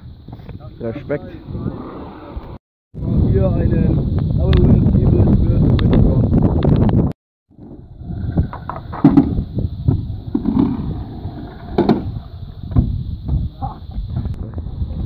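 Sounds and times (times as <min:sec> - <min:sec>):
scooter wheels rumbling on concrete: 0:07.5 - 0:15.0
scooter deck clacking on ground: 0:08.3 - 0:12.9.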